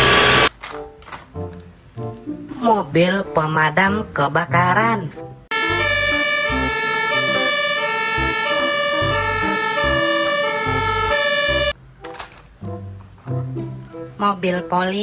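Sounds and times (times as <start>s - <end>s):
two-tone siren: 0.0s - 0.5s, 5.5s - 11.8s.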